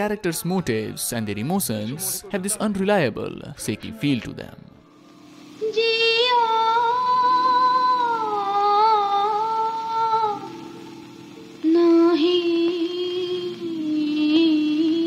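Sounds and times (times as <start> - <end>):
woman singing long note: 5.6 - 10.7, 11.6 - 15.0.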